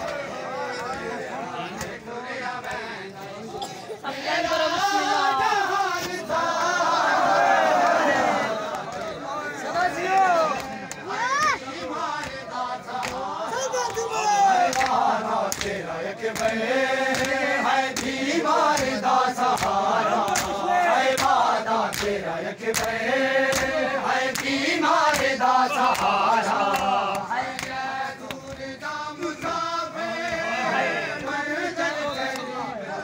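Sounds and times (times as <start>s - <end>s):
men chanting together: 0.0s - 33.0s
hands slapping bare chests: 12.2s - 30.4s.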